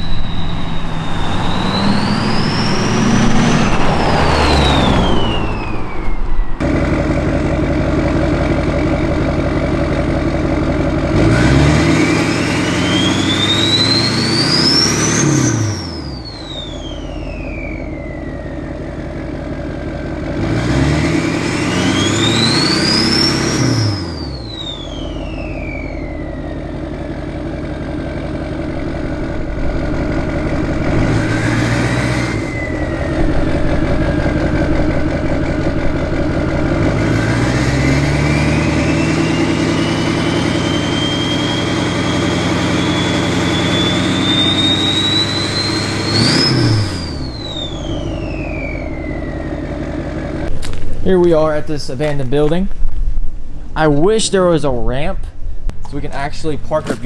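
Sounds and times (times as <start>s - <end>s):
turbo whistle: 0.0s - 6.6s, 11.8s - 18.9s, 21.3s - 26.9s, 29.1s - 35.0s, 37.3s - 49.8s
diesel engine revving: 0.0s - 57.0s.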